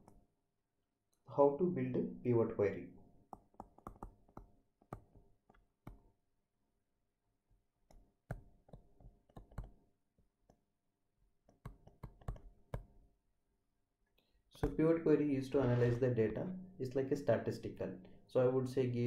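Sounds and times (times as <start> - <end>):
stylus tapping on tablet screen: 3.2 - 6.2, 7.9 - 10.6, 11.4 - 13.0.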